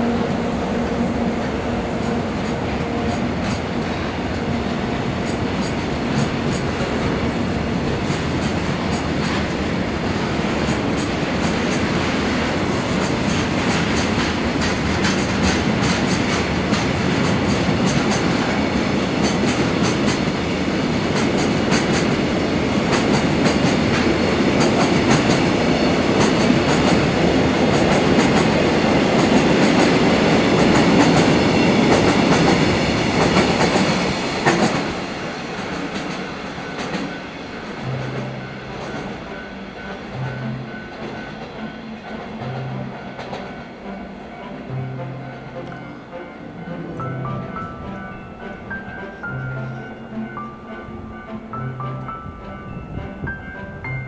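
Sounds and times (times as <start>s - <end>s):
train rumble: 0.0s - 54.0s
train wheels clicking over joints: 1.9s - 44.2s.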